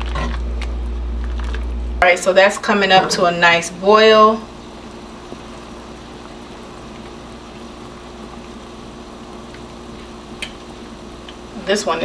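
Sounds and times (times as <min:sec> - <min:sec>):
pot of broth bubbling: 0:02.7 - 0:11.7.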